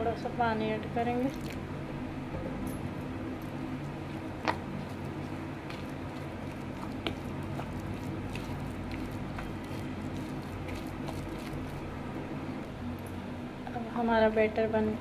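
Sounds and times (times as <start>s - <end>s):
wet batter squishing by hand: 1.2s - 1.7s, 3.3s - 11.9s.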